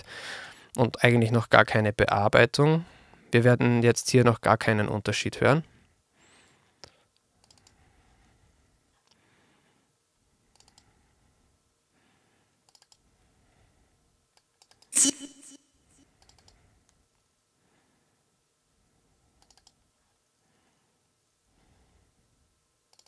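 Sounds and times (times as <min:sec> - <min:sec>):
computer mouse clicking: 0:07.4 - 0:07.8, 0:10.5 - 0:10.9, 0:12.7 - 0:13.0, 0:14.3 - 0:14.9, 0:16.2 - 0:16.6, 0:19.4 - 0:19.8.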